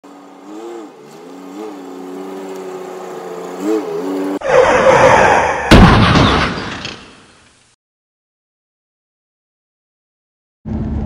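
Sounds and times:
truck engine running: 0.0 - 4.4
sharp bang: 5.7 - 7.3.

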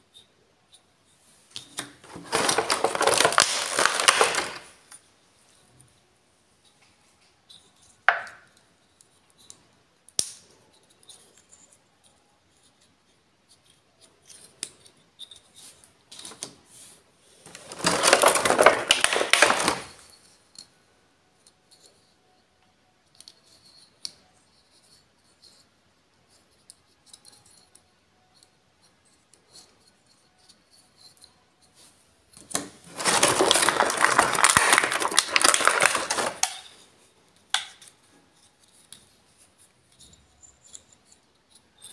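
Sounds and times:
crackling plastic: 1.5 - 5.0, 8.1 - 8.5, 17.4 - 20.2, 32.4 - 36.9
plastic toys clicking and tapping: 1.5 - 5.0, 17.5 - 20.7, 26.5 - 28.5, 32.3 - 41.9.

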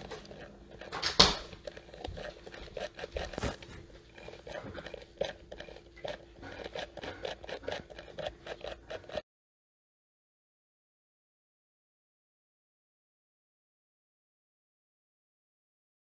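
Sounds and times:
plastic parts clicking and scraping: 0.0 - 9.2.

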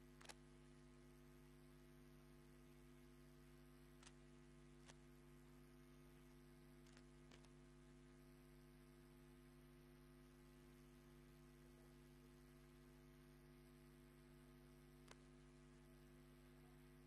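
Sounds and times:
low electrical hum: 0.0 - 17.0
faint clicks: 0.2 - 0.4, 3.9 - 5.1, 6.2 - 7.6, 15.0 - 15.4.

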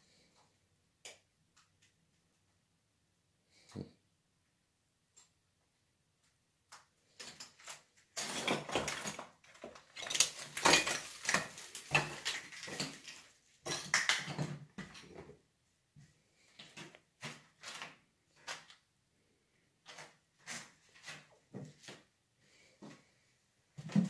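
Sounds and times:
footsteps on debris-strewn wooden floor: 8.2 - 13.3, 16.5 - 18.6.

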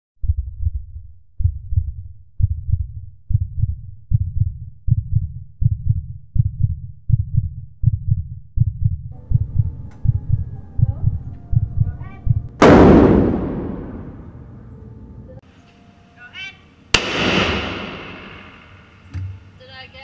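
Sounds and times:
heartbeat thumps: 0.2 - 14.2.

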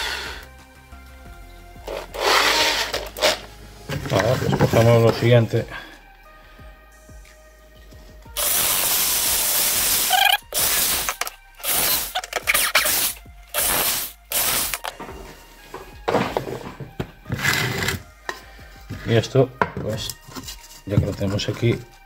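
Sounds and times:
cordless drill boring into board: 2.2 - 3.0, 8.4 - 14.8.

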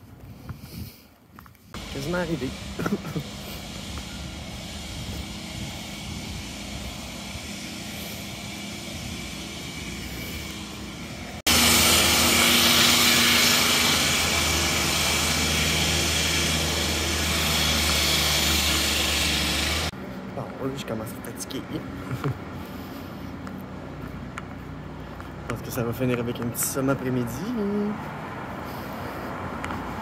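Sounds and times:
street background noise: 0.0 - 30.0
strong hiss: 1.8 - 19.9
aircraft engine drone overhead: 1.8 - 30.0.

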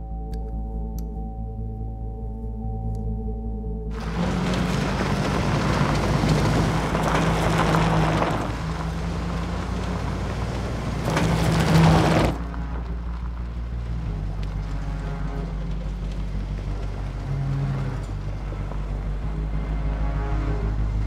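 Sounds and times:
car engine running: 3.9 - 21.0
tyres on loose stones: 4.0 - 13.4.

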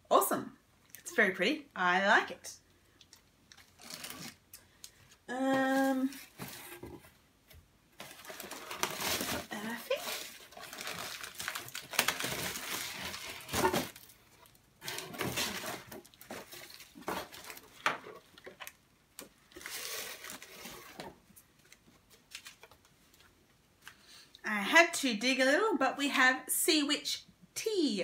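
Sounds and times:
paper and packaging crinkling: 3.2 - 4.4, 8.0 - 23.4.

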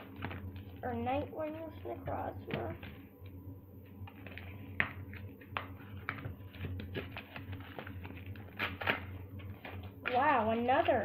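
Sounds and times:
steady low hum: 0.0 - 11.0
foil wrappers crinkling: 4.0 - 11.0.

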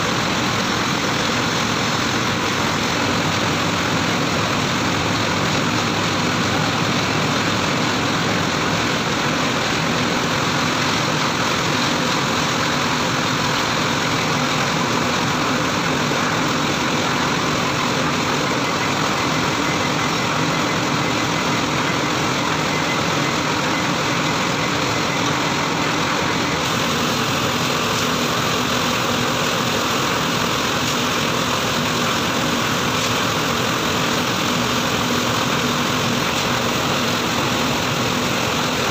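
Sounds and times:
diesel engine running steadily: 0.0 - 38.9.

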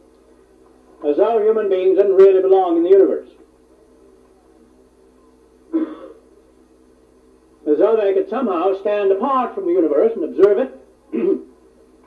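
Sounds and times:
faint steady hum: 0.0 - 12.0
man's short vocal sound: 11.1 - 11.5.

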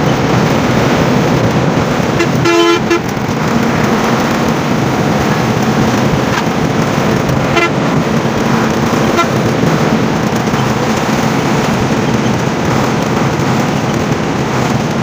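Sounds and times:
bus road noise: 0.0 - 15.0
horn toots: 2.0 - 4.5, 7.2 - 9.9.

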